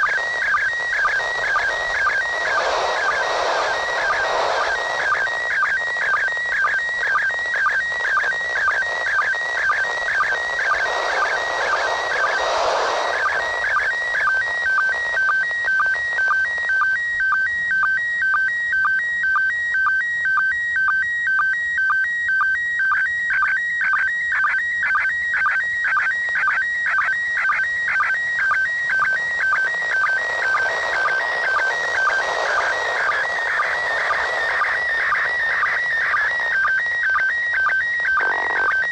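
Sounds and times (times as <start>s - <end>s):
radio static hiss: 0.0s - 16.7s, 27.8s - 38.9s
warbling radio signal tones: 0.0s - 16.7s, 27.4s - 38.9s.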